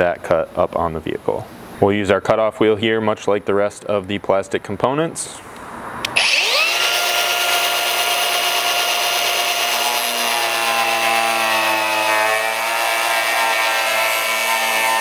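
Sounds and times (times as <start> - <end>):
angle grinder cutting plastic: 6.1 - 15.0.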